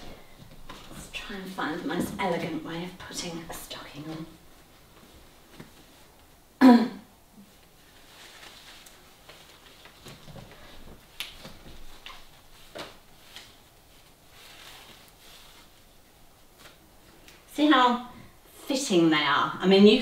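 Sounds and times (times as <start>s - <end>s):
nylon stocking rustling: 7.7s - 17.5s.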